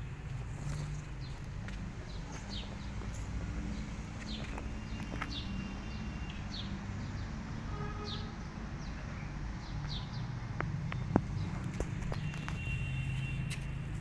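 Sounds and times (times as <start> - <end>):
small birds chirping: 0.6 - 7.4.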